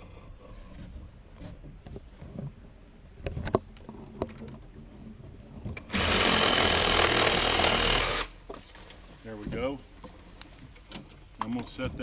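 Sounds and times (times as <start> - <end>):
reciprocating saw cutting wood: 5.9 - 8.4.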